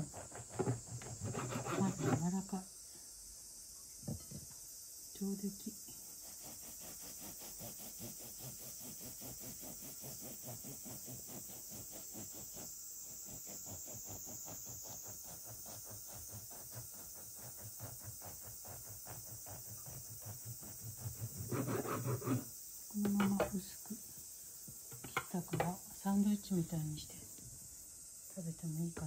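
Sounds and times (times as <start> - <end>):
bread knife sawing through bread: 0.0 - 2.3, 6.0 - 22.5.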